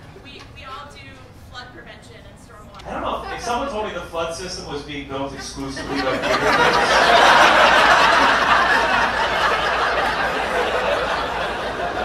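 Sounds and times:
audience laughing: 5.1s - 12.0s.

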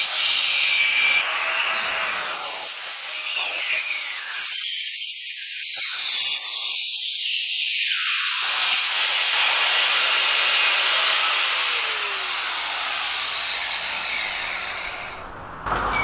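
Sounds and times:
angle grinder grinding steel: 0.0s - 16.0s
grinder winding down whine: 10.4s - 16.0s.

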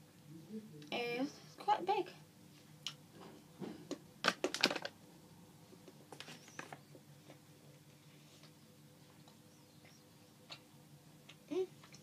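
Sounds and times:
plastic packet crinkling: 4.3s - 4.9s.

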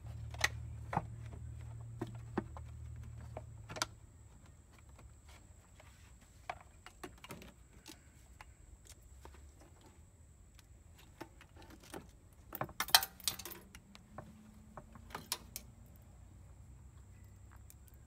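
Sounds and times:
hand tools clicking and knocking: 11.0s - 15.7s.

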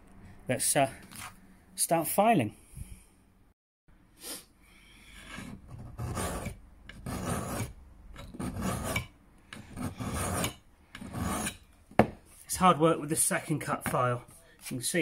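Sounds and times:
hand file rasping on steel: 5.1s - 11.7s.

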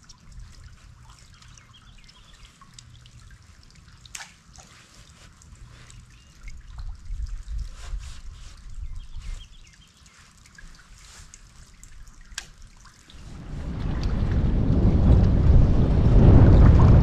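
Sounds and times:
water dripping and trickling: 0.0s - 16.0s
low rumble: 13.1s - 17.0s.

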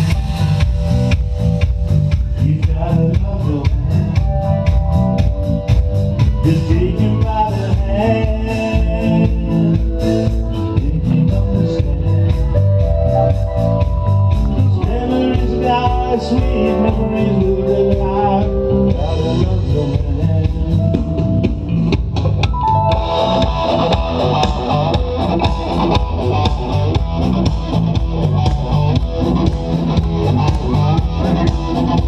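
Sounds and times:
drum kit beat: 0.0s - 32.0s
electric guitars: 0.0s - 32.0s
person singing: 2.3s - 4.9s, 6.2s - 13.2s, 14.4s - 21.2s, 30.6s - 32.0s.

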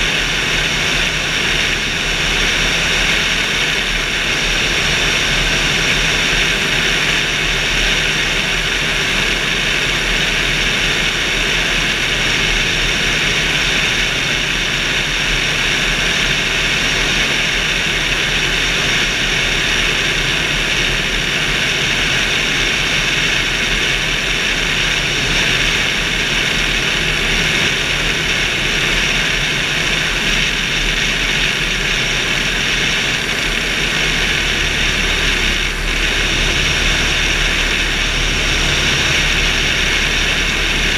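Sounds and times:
steady engine drone: 0.0s - 40.9s
airflow rushing: 31.8s - 40.9s.

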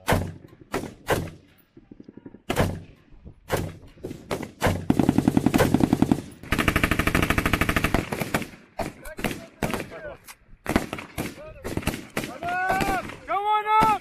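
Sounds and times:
rifle single shots: 7.8s - 14.0s.

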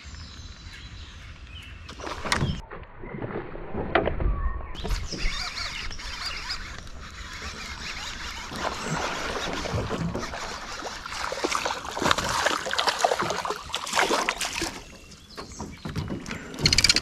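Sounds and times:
water splashing: 4.9s - 15.1s.

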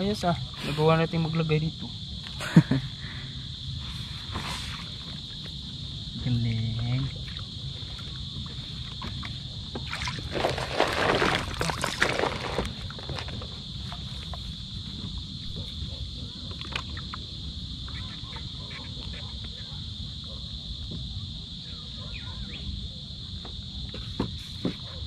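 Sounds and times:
night insects chirring: 0.0s - 25.0s
water splashing and sloshing: 8.8s - 14.1s.

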